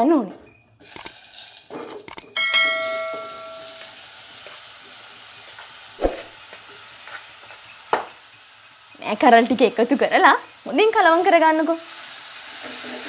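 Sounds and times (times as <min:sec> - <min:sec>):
beans sizzling in hot oil: 0:00.8 - 0:01.7, 0:03.4 - 0:13.0
ringing clang on pot: 0:02.4 - 0:03.9.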